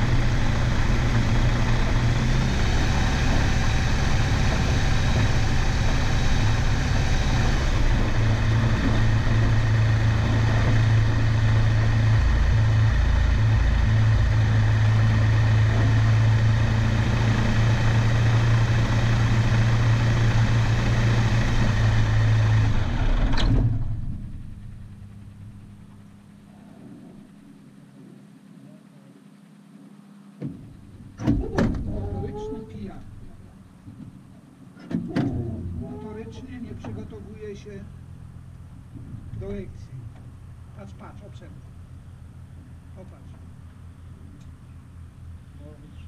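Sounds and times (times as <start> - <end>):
light aircraft engine idling: 0.0 - 46.0.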